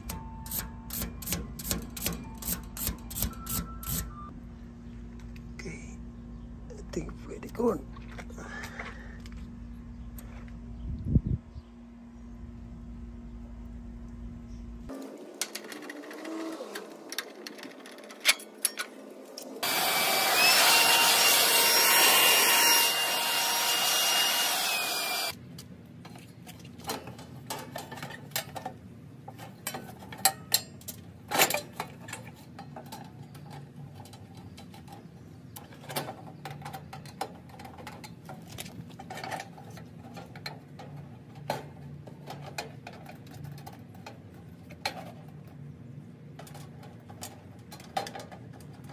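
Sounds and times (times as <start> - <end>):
power drill whining: 19.6 - 25.4.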